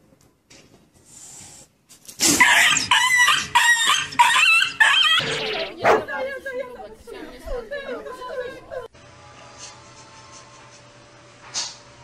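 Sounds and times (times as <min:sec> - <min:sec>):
high-pitched animal cries: 0:02.4 - 0:05.8.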